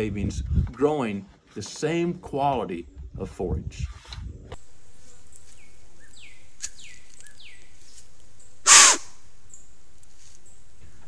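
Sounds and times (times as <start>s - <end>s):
steady hiss: 4.6s - 11.0s
loud breathy burst of noise: 8.6s - 9.2s.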